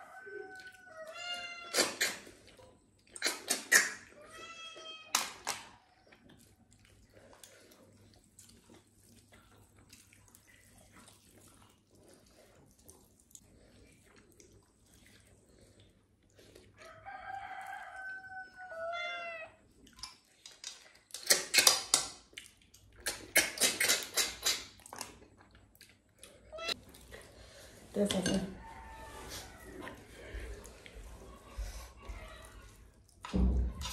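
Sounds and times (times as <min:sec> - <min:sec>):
faint eating by hand: 0:00.0 - 0:33.9
rooster crowing: 0:17.0 - 0:19.1, 0:28.5 - 0:30.0.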